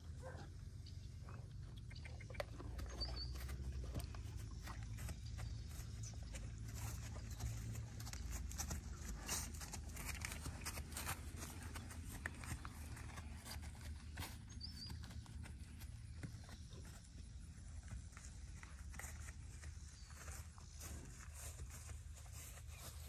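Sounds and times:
saddle and bridle clicks: 2.0s - 14.9s
hoof steps on grass: 2.3s - 23.0s.

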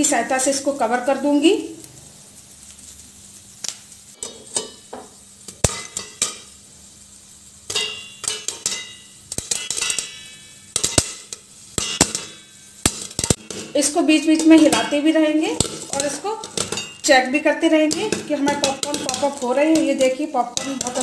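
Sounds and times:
popcorn popping: 2.6s - 6.6s, 7.6s - 21.0s
steel lid ringing: 7.7s - 17.2s, 17.9s - 21.0s.

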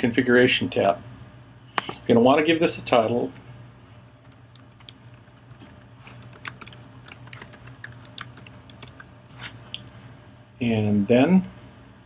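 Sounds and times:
typing on a computer keyboard: 4.2s - 9.1s.

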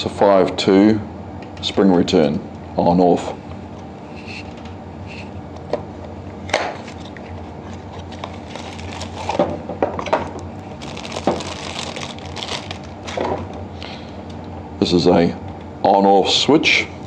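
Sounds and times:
cardboard rustling and scraping: 6.8s - 9.5s.

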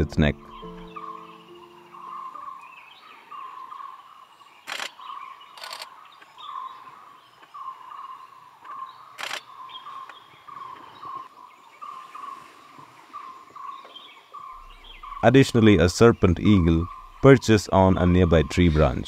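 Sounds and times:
high bird chirps: 0.0s - 12.1s, 13.2s - 18.8s
camera shutter clicks: 4.7s - 5.0s, 5.6s - 6.0s, 9.2s - 9.5s
bird repeating short note: 16.4s - 17.3s.

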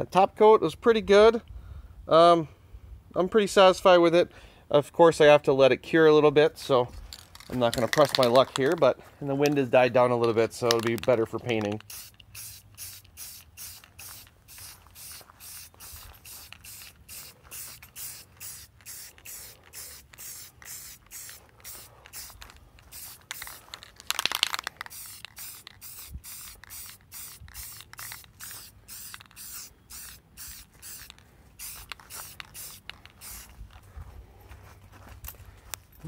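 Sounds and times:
spray-paint can hissing: 11.7s - 33.6s.

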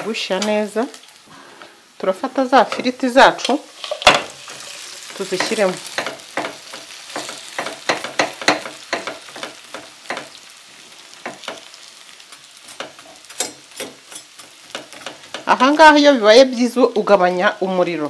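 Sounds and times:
food sizzling in a frying pan: 0.0s - 18.0s
metal spatula scraping a pan: 2.6s - 10.5s, 12.5s - 15.5s.

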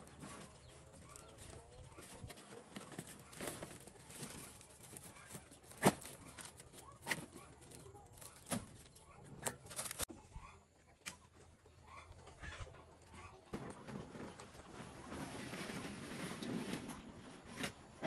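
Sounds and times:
plastic tarpaulin rustling: 0.0s - 8.9s, 13.5s - 18.0s.

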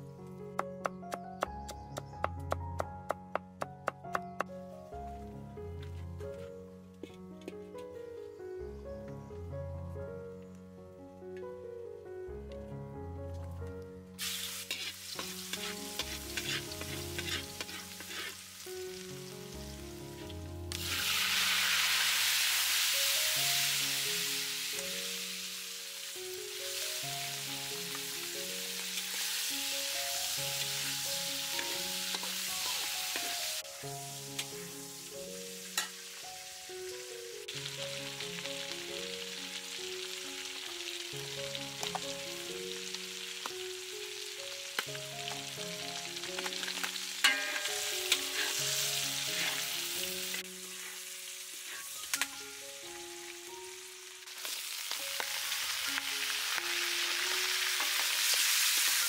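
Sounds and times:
soft background melody: 0.0s - 59.0s
metal spatula scraping a pan: 14.2s - 18.5s, 47.2s - 49.9s
oil sizzling in a wok: 14.2s - 59.0s.

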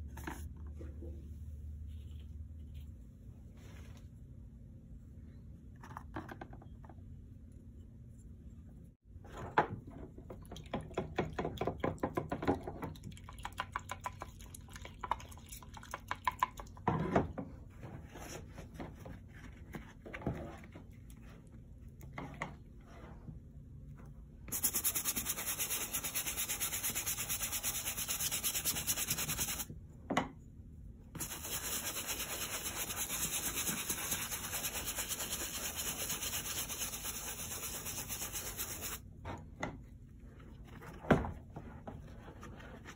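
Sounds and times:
brush scrubbing wet suede: 24.5s - 29.7s, 31.2s - 39.0s.

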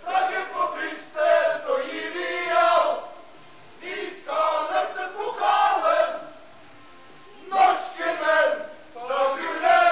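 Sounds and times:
men chanting in unison: 3.8s - 6.4s, 7.4s - 9.9s.

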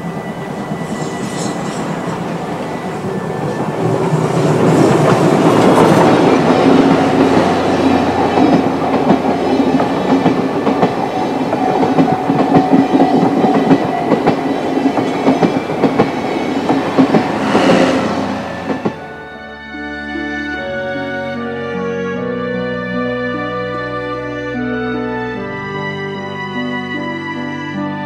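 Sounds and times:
steam locomotive passing: 0.0s - 19.6s
train wheels clacking on rail joints: 3.4s - 19.1s.

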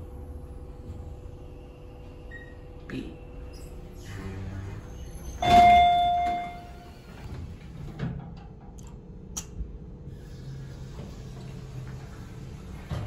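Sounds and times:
elevator chime ding: 5.4s - 6.9s.

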